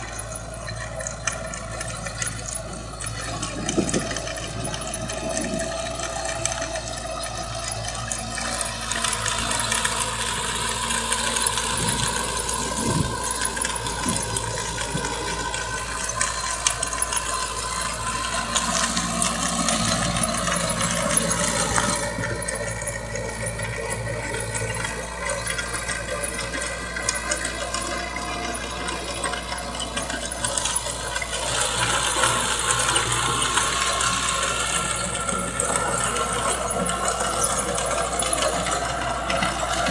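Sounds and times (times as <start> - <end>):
clatter of small ticks: 0.0 - 39.9
rotary tiller churning soil: 0.0 - 39.9
tractor diesel engine running: 0.0 - 39.9.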